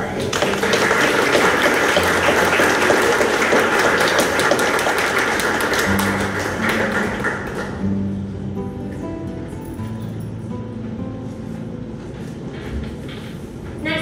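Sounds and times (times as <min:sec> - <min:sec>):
audience clapping: 0:00.0 - 0:08.0
music playing: 0:00.0 - 0:13.9.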